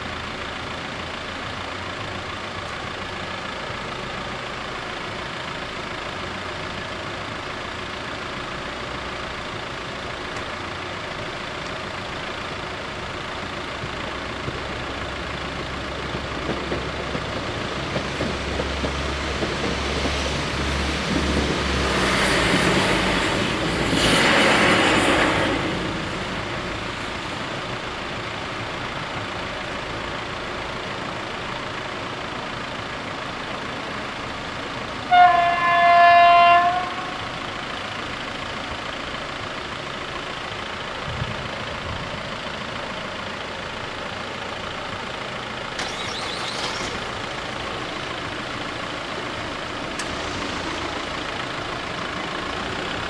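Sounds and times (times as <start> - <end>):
train running over crossing: 0.0 - 53.0
train horn blast: 35.1 - 37.3.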